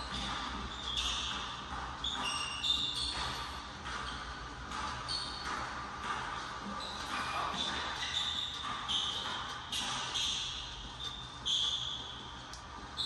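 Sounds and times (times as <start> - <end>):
basketball bouncing: 0.0 - 12.0
shoes squeaking on wooden floor: 0.0 - 12.3.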